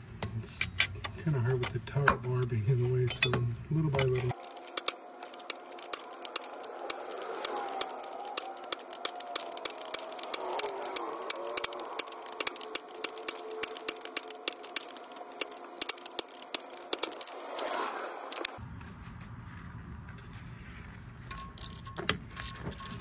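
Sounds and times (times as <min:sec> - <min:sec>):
ratchet wrench clicking: 0:04.0 - 0:18.5.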